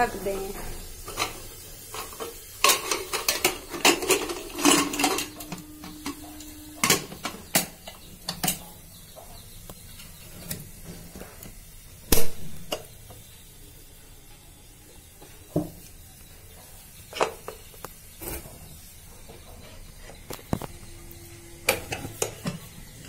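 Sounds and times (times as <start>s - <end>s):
pressure cooker clanking: 0.9s - 10.6s, 12.1s - 13.2s, 21.6s - 23.0s
steady ringing tone: 4.4s - 8.0s, 20.5s - 23.0s.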